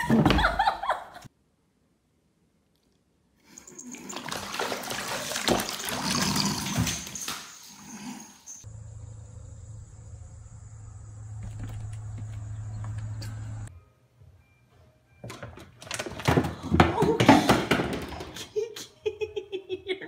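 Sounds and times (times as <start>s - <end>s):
cat splashing in water: 3.9s - 6.5s
steady low hum: 8.7s - 13.7s.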